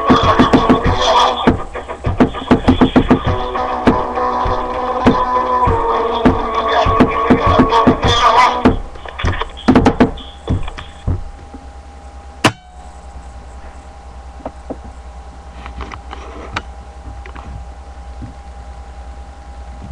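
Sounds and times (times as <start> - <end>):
steady low hum: 0.0 - 19.9
thin steady whine: 0.0 - 19.9
knocks and bumps: 0.1 - 11.7.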